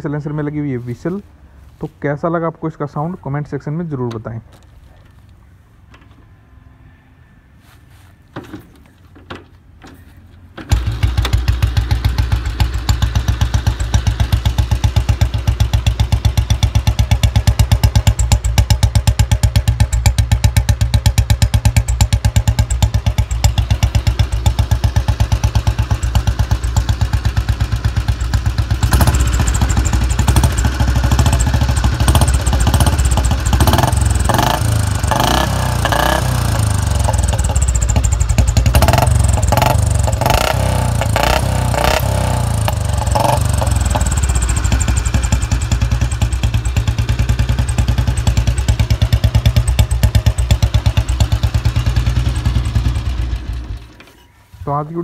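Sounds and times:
motorcycle engine thumping: 0:08.3 - 0:54.3
motorcycle kick-starting: 0:08.3 - 0:54.4
motorcycle engine revving: 0:10.6 - 0:54.0.

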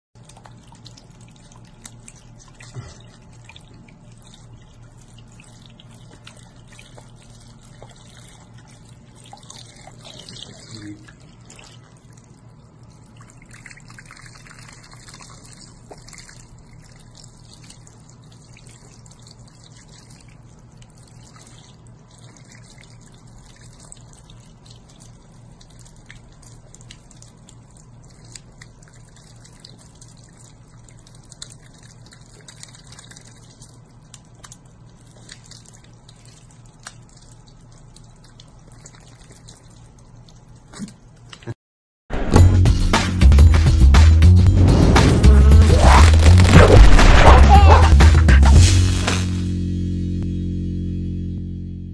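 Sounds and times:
water drips and splashes: 0:00.2 - 0:41.6.

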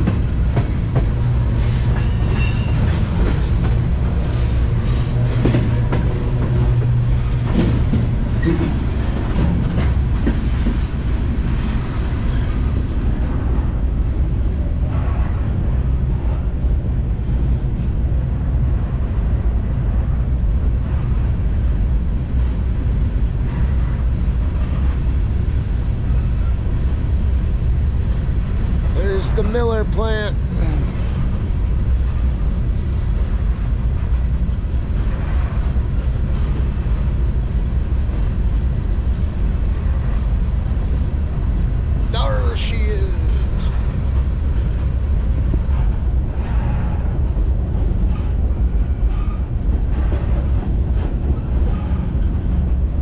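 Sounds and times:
clanks and rattles: 0:00.0 - 0:13.0, 0:43.6 - 0:53.0
train wheels rumbling on rail: 0:00.0 - 0:53.0.

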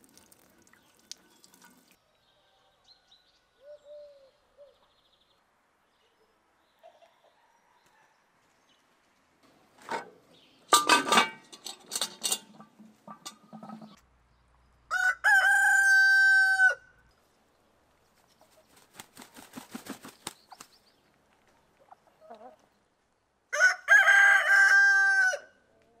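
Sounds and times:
rooster crowing: 0:14.9 - 0:16.9, 0:23.5 - 0:25.6.

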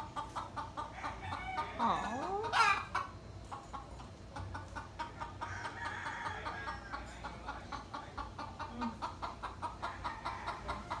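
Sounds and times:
chickens clucking: 0:00.0 - 0:11.0
chicken drawn-out call: 0:00.8 - 0:03.1.

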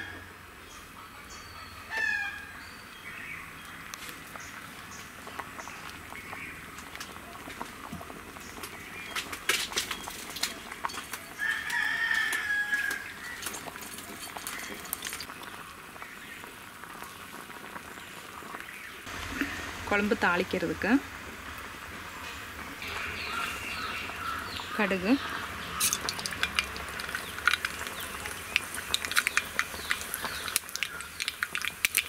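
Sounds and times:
chickens calling: 0:22.8 - 0:31.9.

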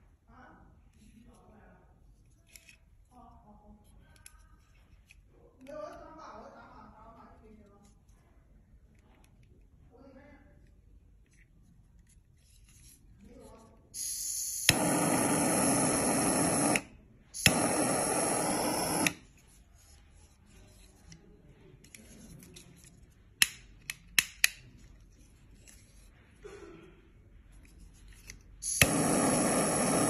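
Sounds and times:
jet flame hiss: 0:14.0 - 0:19.2, 0:28.6 - 0:30.0
lighter ignition click: 0:14.0 - 0:19.2, 0:28.6 - 0:30.0.

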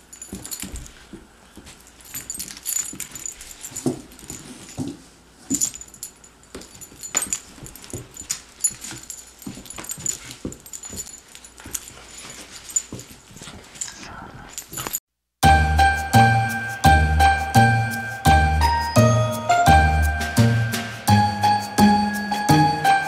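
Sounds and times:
scuffling: 0:00.0 - 0:14.0
metallic jingles and clicks: 0:00.0 - 0:15.0.

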